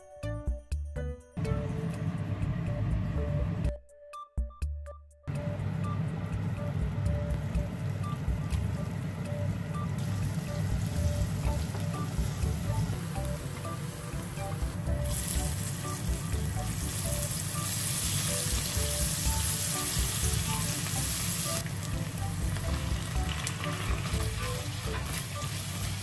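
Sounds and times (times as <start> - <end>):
garlic and onion sizzling in oil: 10.0 - 26.0.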